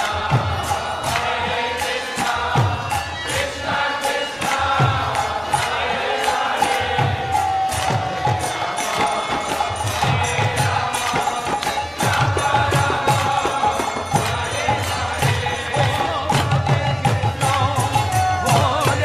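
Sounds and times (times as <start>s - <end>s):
devotional chanting: 0.0s - 19.0s
small jingling cymbals: 0.0s - 19.0s
drum beat: 4.1s - 19.0s.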